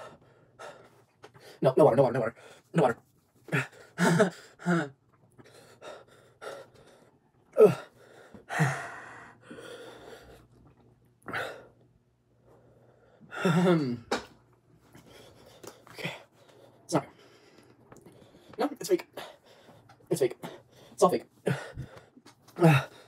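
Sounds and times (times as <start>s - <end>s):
man gasping and breathing hard: 3.4s - 10.4s, 12.8s - 14.1s, 15.0s - 23.0s.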